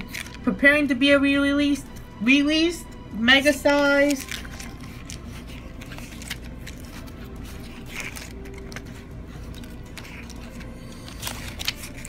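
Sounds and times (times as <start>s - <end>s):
paper pages rustling: 0.0s - 0.4s, 3.8s - 12.0s
steady low hum: 0.0s - 12.0s.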